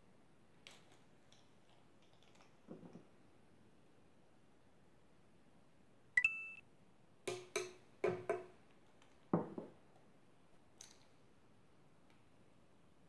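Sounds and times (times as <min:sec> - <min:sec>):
short electronic chime: 0:06.2 - 0:06.6
spoon tapping a jar: 0:07.3 - 0:08.5.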